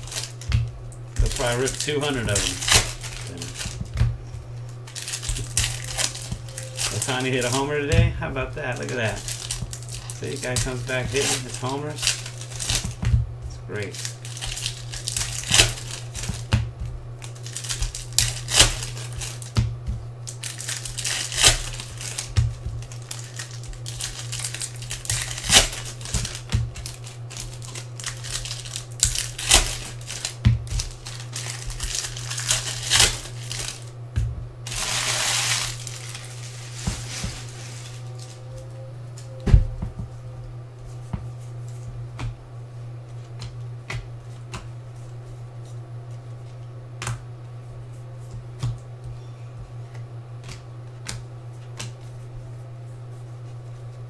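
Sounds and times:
foil wrappers crinkling and tearing: 0.0 - 19.6, 20.2 - 34.0, 34.6 - 39.8
steady low hum: 0.0 - 54.0.

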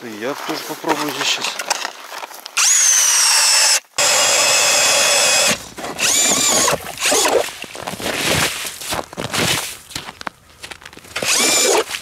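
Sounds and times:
drill motor whining: 2.6 - 7.4, 11.2 - 11.9.

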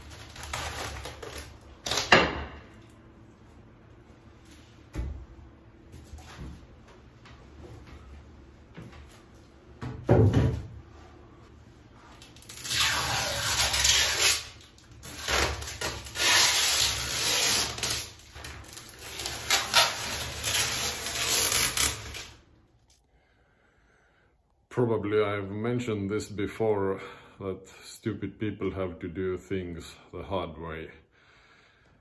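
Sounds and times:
plastic sheeting rustling: 0.0 - 1.7, 12.0 - 22.4.

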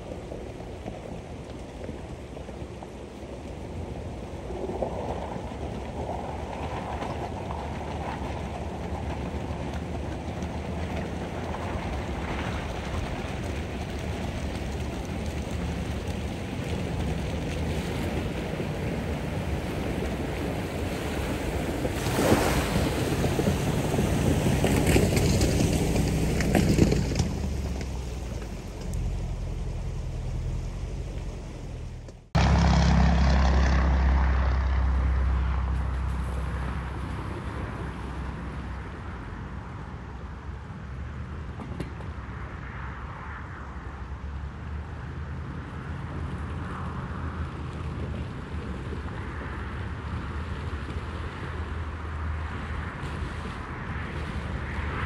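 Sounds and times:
water splashing around wheels: 0.0 - 39.9, 45.5 - 55.0
wind rumble on microphone: 0.0 - 55.0
car engine running: 24.8 - 35.2.

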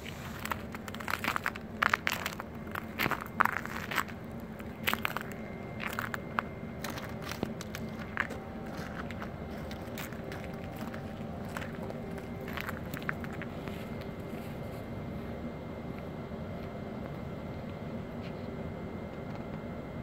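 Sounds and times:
footsteps crunching on snow: 0.0 - 15.4
electric train humming: 0.0 - 20.0.

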